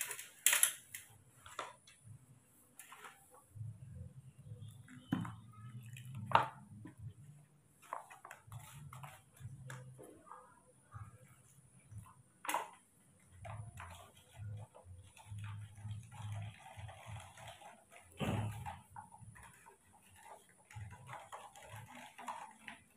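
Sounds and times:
spoon and plastic cups clinking: 4.6s - 10.6s, 11.3s - 22.9s.

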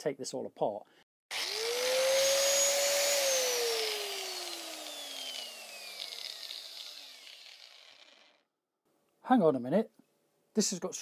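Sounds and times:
grinder disc spinning down: 1.3s - 8.4s
angle grinder whining: 1.3s - 8.5s.

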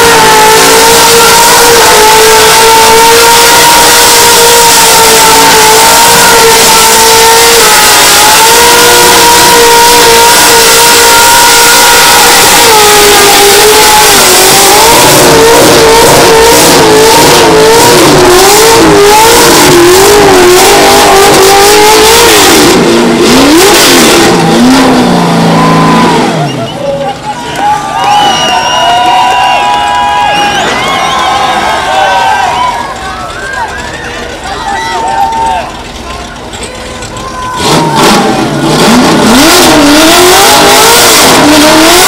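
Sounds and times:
engine revving at high revs: 0.0s - 26.5s, 37.6s - 42.0s.

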